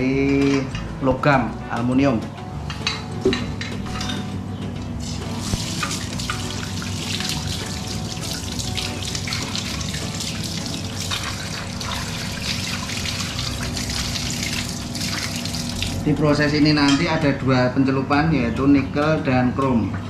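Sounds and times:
tap water splashing on metal: 5.0 - 16.0.

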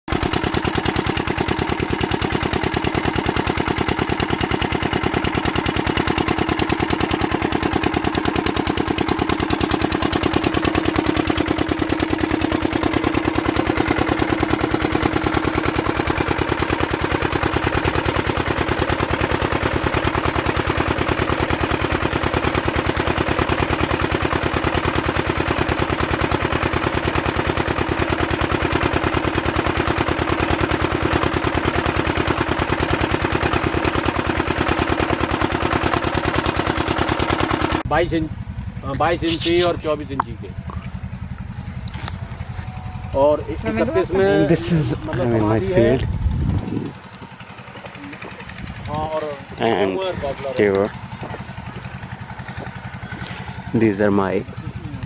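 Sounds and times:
diesel engine chugging: 0.1 - 55.0.

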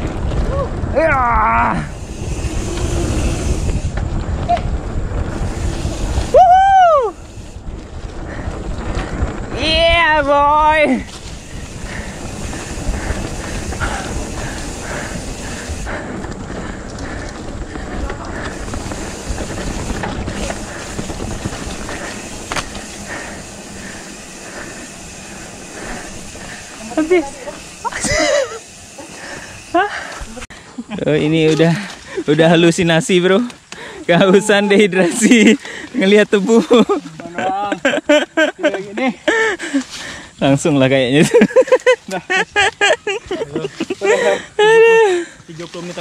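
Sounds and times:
wind buffeting microphone: 0.0 - 30.5
bike rolling on dirt trail: 0.0 - 46.0
person whooping: 0.5 - 1.9, 6.2 - 7.3.

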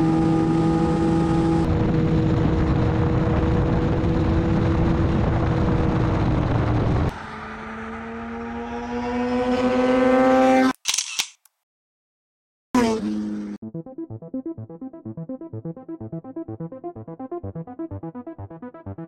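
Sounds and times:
wind roar: 0.0 - 8.3
motorcycle engine at speed: 0.0 - 10.7, 12.8 - 13.6.

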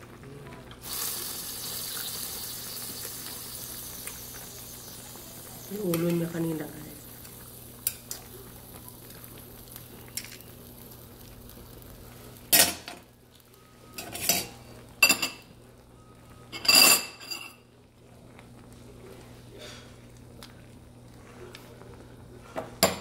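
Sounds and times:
broth bubbling: 0.0 - 12.4
metal tongs clattering on pot: 14.0 - 14.5.

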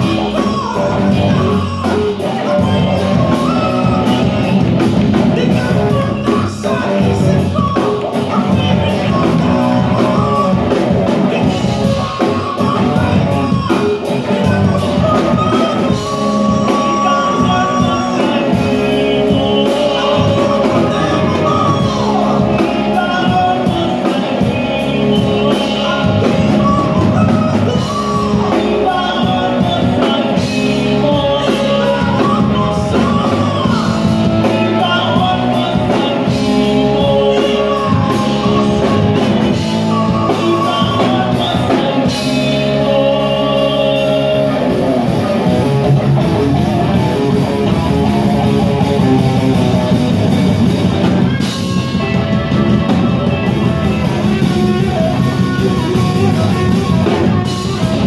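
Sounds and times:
drum kit: 0.0 - 58.0
electric guitar: 0.0 - 58.0
person singing: 0.0 - 58.0.

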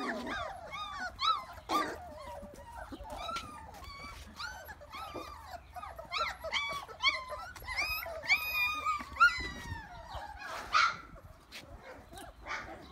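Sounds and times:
puppies whimpering and yelping: 0.0 - 12.9.

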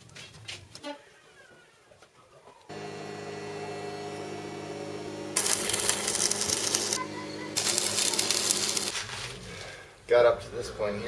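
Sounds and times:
welder humming: 2.7 - 9.0
welding arc crackling and sizzling: 5.2 - 9.0.

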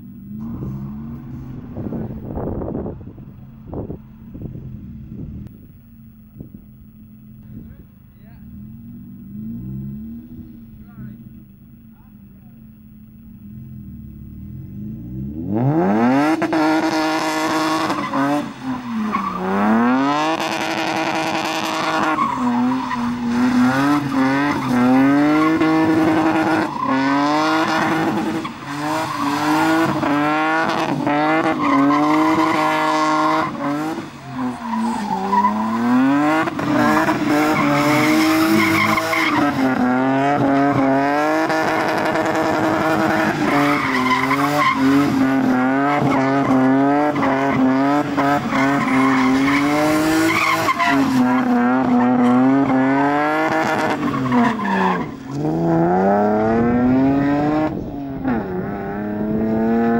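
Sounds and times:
car engines revving hard: 0.0 - 5.7, 6.4 - 59.9
tyres squealing and skidding: 16.1 - 58.6.

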